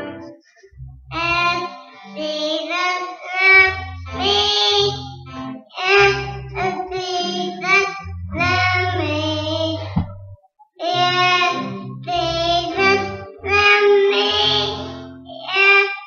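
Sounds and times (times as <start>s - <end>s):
guitar accompaniment: 0.0s - 16.0s
boys singing: 10.8s - 16.0s.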